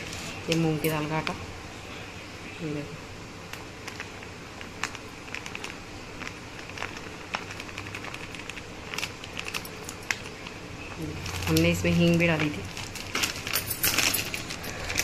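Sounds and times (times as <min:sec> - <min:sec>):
plastic bag crinkling: 0:03.8 - 0:15.0.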